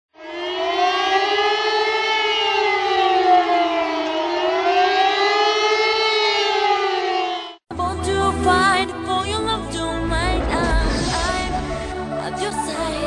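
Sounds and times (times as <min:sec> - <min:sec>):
siren-like tone: 0:00.1 - 0:07.6.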